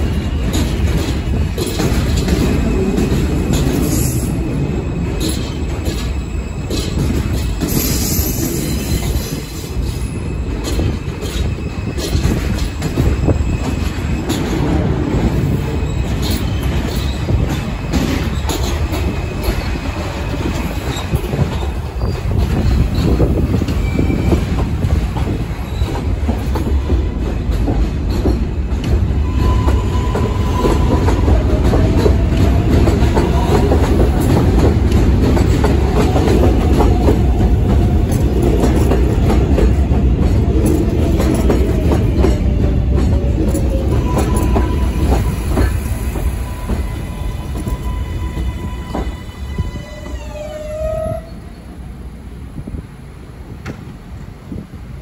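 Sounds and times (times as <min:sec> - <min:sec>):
wheels clicking over rail joints: 0:00.0 - 0:04.2, 0:16.0 - 0:49.1
train wheels rumbling on rails: 0:00.0 - 0:55.0.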